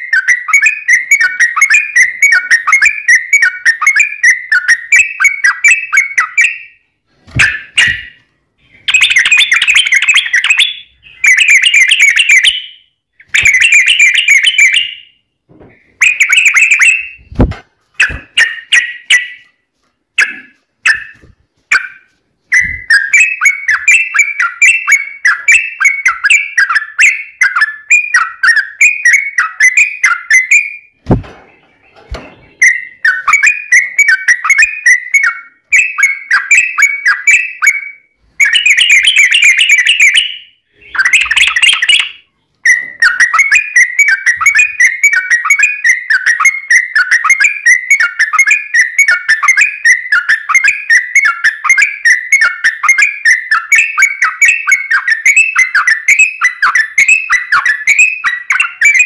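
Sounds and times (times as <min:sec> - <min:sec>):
low thumps: 0:17.2 - 0:18.4, 0:31.0 - 0:32.5.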